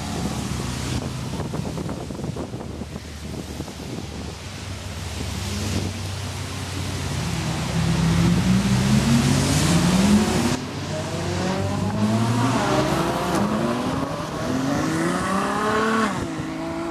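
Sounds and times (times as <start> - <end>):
tyres hissing on wet road: 0.0 - 16.9
sports cars accelerating past: 7.3 - 16.9.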